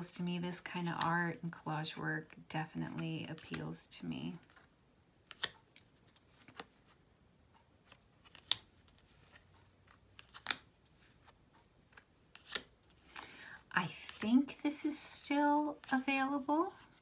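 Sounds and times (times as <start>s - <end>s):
cards rustling: 2.9s - 3.8s, 4.4s - 7.0s, 7.8s - 14.8s, 15.7s - 17.0s
cards snapping: 5.2s - 6.8s, 7.9s - 10.7s, 11.9s - 13.2s.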